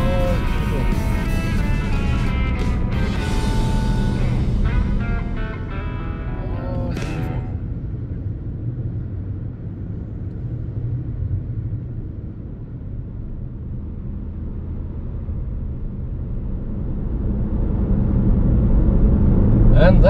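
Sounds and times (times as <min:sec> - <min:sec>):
car engine rumble: 0:00.0 - 0:20.0
tyre noise: 0:06.4 - 0:07.6.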